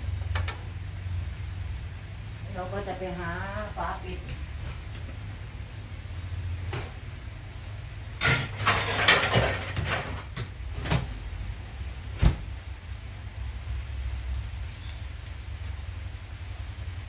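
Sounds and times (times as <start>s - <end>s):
kitchenware clattering: 8.2s - 11.1s.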